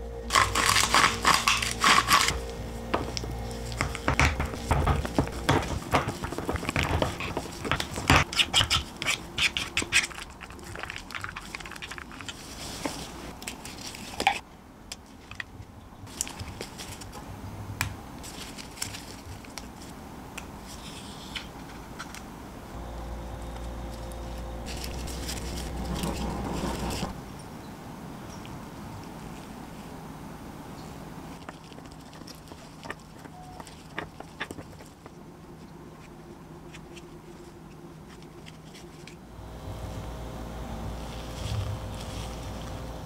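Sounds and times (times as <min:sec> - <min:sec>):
spoon scraping glass bowl: 0:00.3 - 0:10.2.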